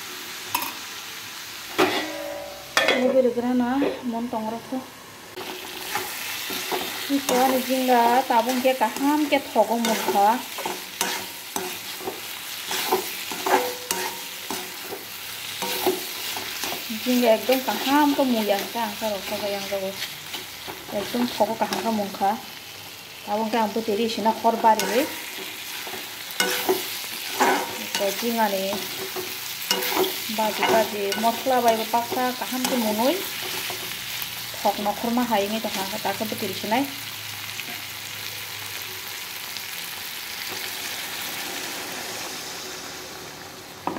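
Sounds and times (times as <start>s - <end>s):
frying sizzle: 0.0s - 43.9s
metal spatula scraping pan: 5.4s - 22.2s, 24.6s - 33.9s.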